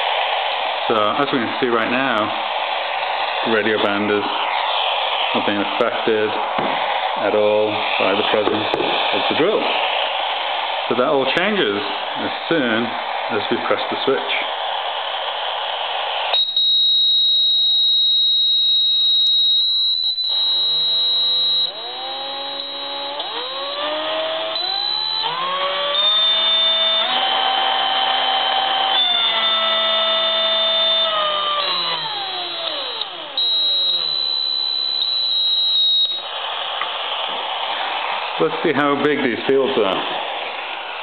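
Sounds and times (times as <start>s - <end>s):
radio static: 0.0s - 25.7s, 30.2s - 41.0s
steady high whine: 0.0s - 41.0s
buzzing tone rising in pitch: 16.3s - 36.4s.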